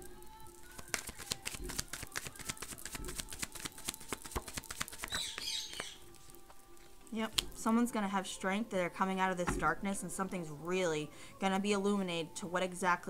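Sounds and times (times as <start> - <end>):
cards being shuffled: 0.7 - 6.6.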